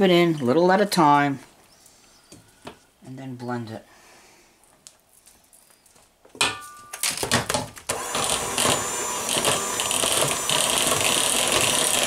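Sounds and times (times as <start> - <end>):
electric hand mixer running: 7.9 - 12.0.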